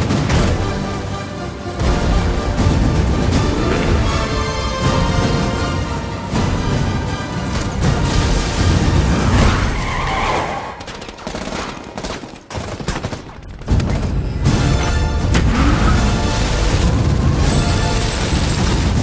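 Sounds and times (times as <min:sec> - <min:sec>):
trailer music: 0:00.0 - 0:10.5, 0:13.6 - 0:19.0
rapid machine-gun fire: 0:10.6 - 0:19.0.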